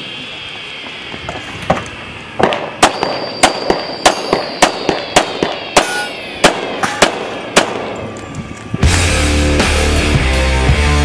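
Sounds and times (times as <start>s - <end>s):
pistol shots: 2.4s - 8.0s.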